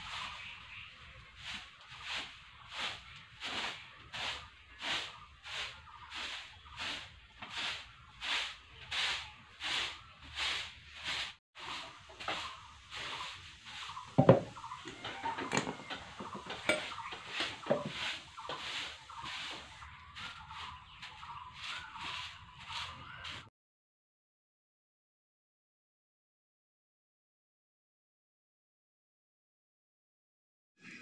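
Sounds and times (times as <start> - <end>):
broom sweeping concrete floor: 0.0 - 23.5.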